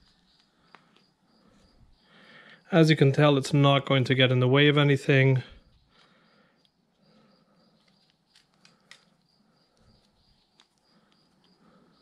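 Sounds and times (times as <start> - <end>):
zip tie clicks: 7.8 - 11.5.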